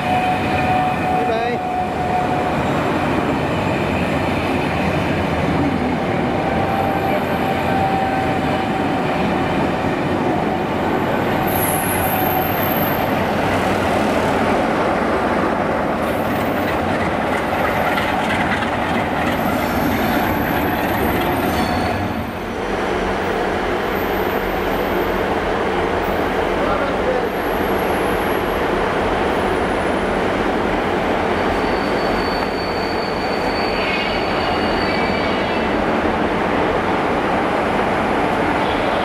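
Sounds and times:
diesel locomotive passing: 0.0 - 39.0
train wheels rumbling on rails: 0.0 - 39.0
thin wheel squeal: 31.6 - 35.6.

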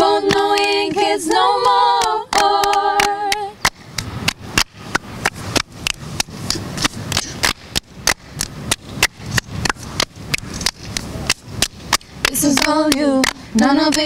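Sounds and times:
hands clapping in rhythm: 0.0 - 14.0.

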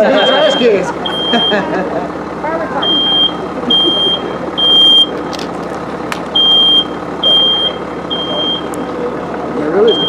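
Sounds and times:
smoke alarm beeping: 0.2 - 1.6, 2.8 - 5.2, 6.3 - 8.9.

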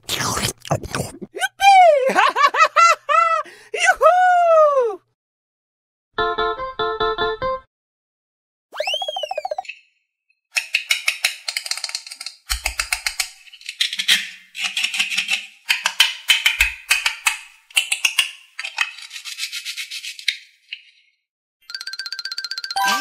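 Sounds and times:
plastic toy crackling clicks: 10.6 - 19.0.

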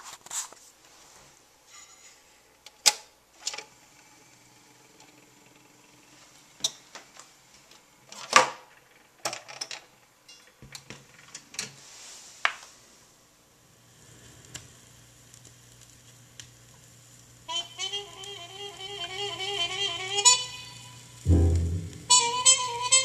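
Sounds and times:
faint steady hum: 12.2 - 23.0.

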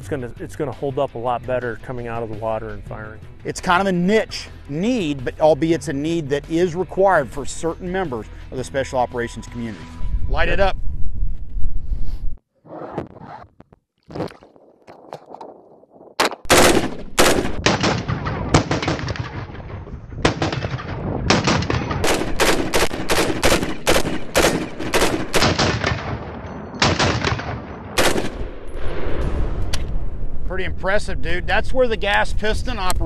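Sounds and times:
rifle firing rapid single shots: 16.2 - 19.6, 20.2 - 28.6.

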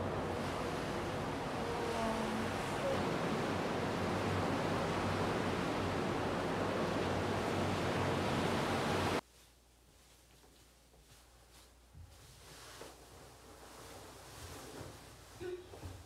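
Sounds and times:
surf washing onto beach: 0.0 - 9.2.

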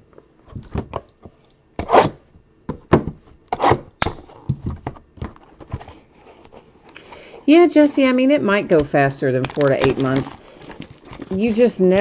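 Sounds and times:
cards scraping: 9.6 - 12.0
trading cards rustling and sliding: 9.6 - 12.0.

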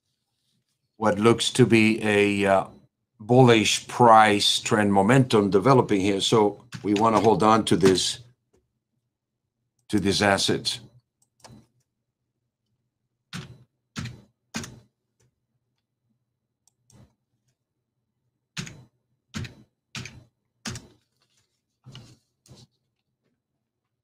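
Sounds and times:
computer keyboard keystrokes: 6.7 - 8.1.

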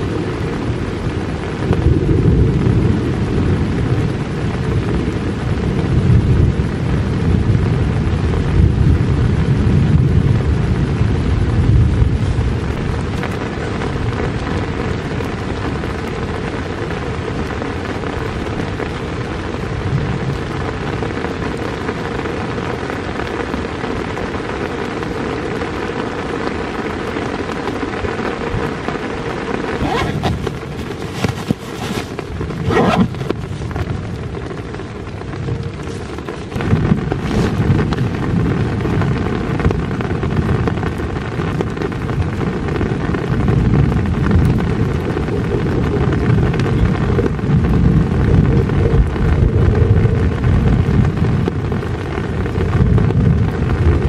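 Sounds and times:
rain hiss: 0.0 - 54.0
backpack rustling and clicking: 29.8 - 33.8.

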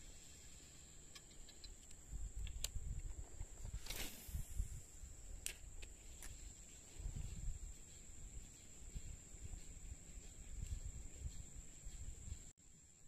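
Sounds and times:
high-pitched insect drone: 6.0 - 13.0.

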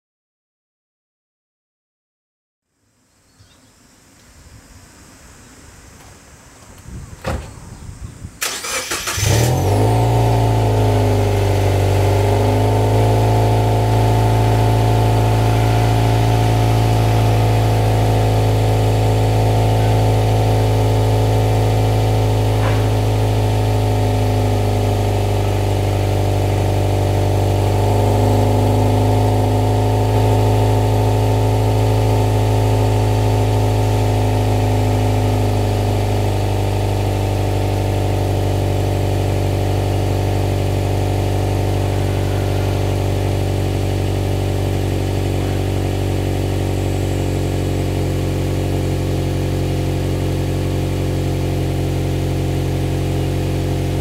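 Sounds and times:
engine starter cranking: 8.4 - 9.8
car engine idling: 8.4 - 54.0.

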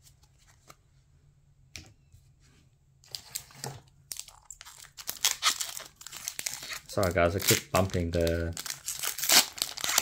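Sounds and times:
foil wrapper crinkling and tearing: 4.1 - 10.0.

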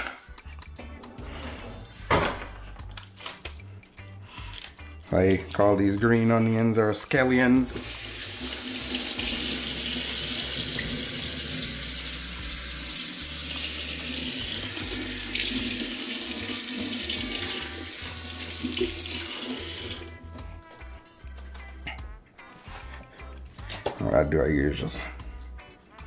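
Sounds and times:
faucet running into metal sink: 7.8 - 20.0.

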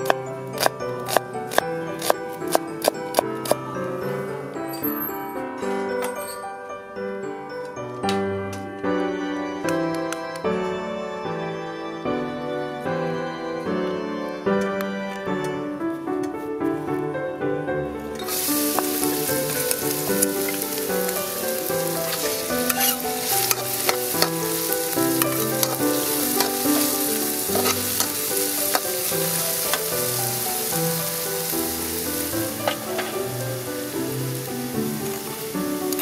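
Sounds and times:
onion sizzling in hot oil: 0.0 - 2.2, 18.2 - 36.0
metal spatula scraping a wok: 18.2 - 30.8.

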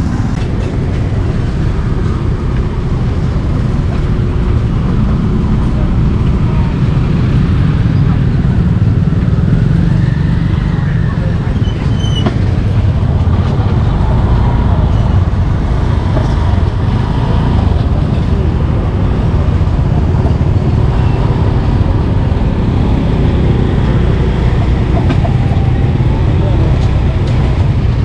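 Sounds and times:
street traffic rumble: 0.0 - 28.0.

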